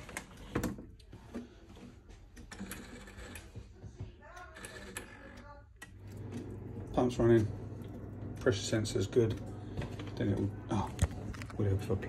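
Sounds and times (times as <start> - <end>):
pump humming: 5.8 - 12.0.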